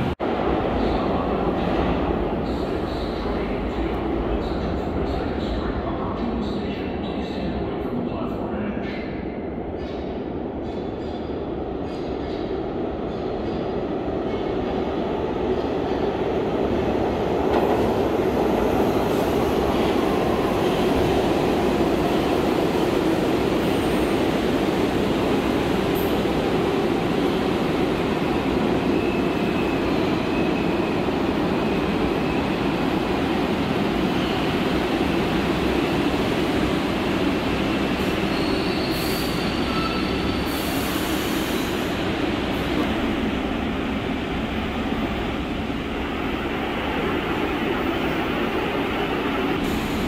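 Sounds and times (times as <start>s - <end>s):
subway train rumbling on track: 0.0s - 50.0s
faint wheel squeals: 38.3s - 40.6s.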